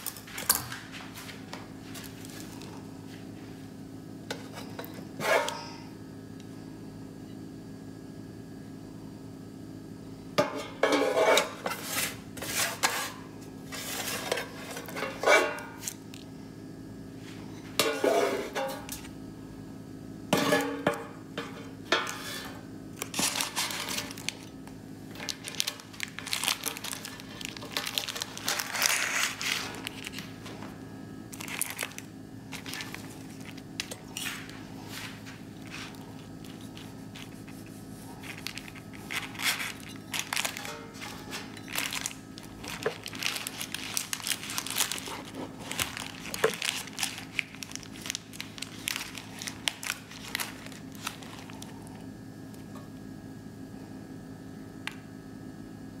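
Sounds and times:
parchment paper crinkling: 23.0 - 24.5, 25.1 - 30.4, 31.3 - 52.0.

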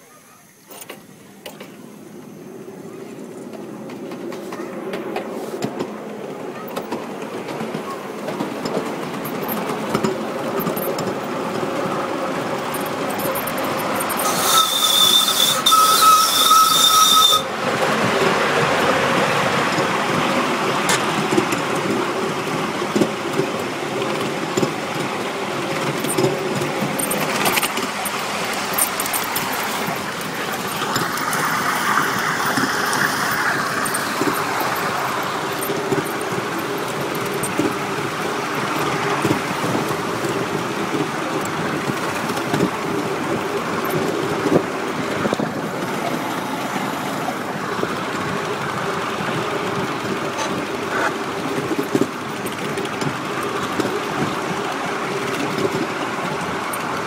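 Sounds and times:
miniature steam locomotive running: 0.0 - 57.0
steam whistle: 14.0 - 17.6.

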